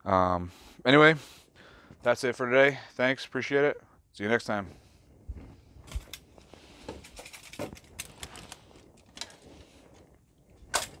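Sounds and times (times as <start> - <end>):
clothing rustle: 4.8 - 11.0.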